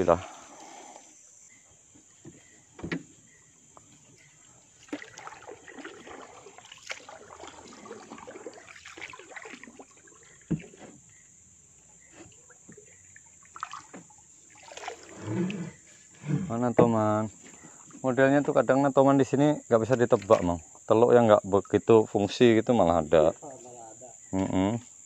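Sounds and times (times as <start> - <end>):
water dripping off paddle: 3.7 - 15.6.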